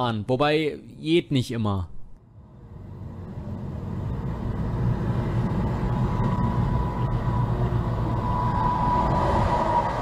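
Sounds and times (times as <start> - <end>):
car road noise inside cabin: 2.4 - 10.0.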